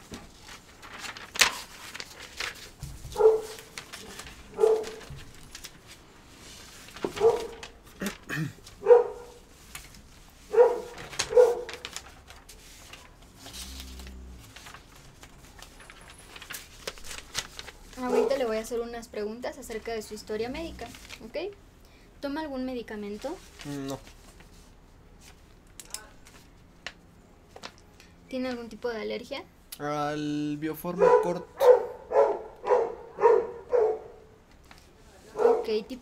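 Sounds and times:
dog barking: 3.1 - 3.7, 4.5 - 5.1, 7.2 - 7.6, 8.8 - 9.4, 10.5 - 11.8, 18.1 - 18.5, 30.9 - 34.4, 35.3 - 35.8.

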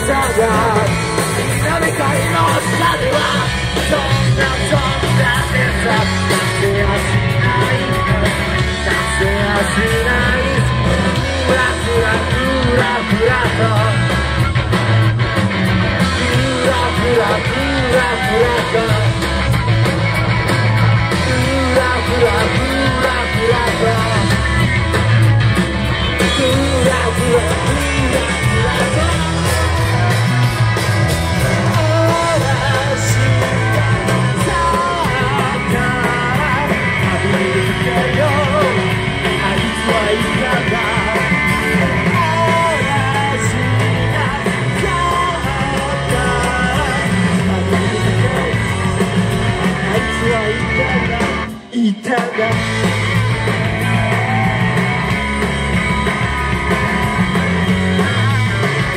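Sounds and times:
person singing into a microphone: 0.0 - 14.2, 16.0 - 19.3, 21.1 - 24.6, 26.2 - 30.3, 31.6 - 52.9
drums: 0.0 - 58.9
electric guitar: 0.0 - 58.9.

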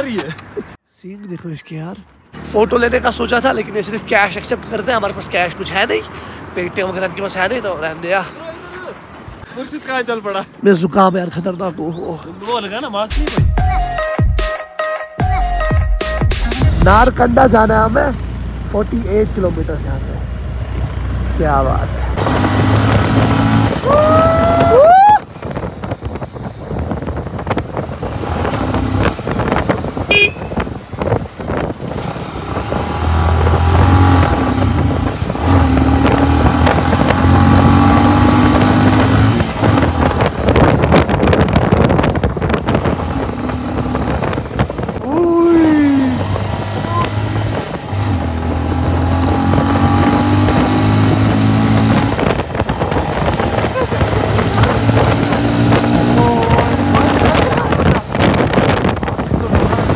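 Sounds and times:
road noise: 0.0 - 13.8, 15.6 - 59.9
motorcycle engines humming: 16.5 - 59.9.

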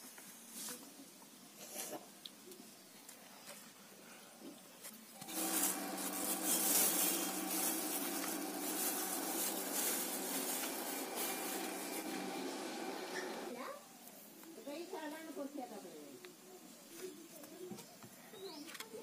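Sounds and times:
plastic bag crinkling: 5.2 - 13.5.

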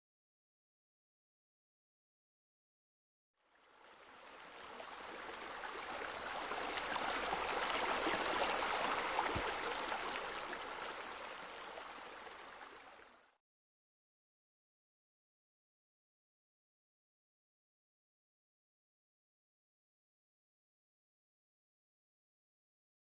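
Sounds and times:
water trickling: 3.4 - 13.4.

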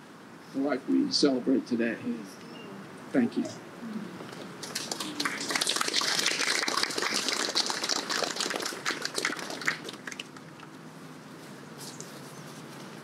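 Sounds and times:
audience clapping: 4.6 - 10.6.

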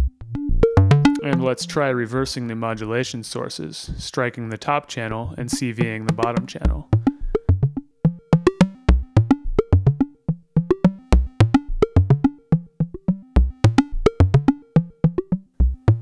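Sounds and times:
deep low synth notes: 0.0 - 1.9, 5.3 - 16.0
plucked synthesizer notes: 0.0 - 2.3, 5.3 - 16.0.

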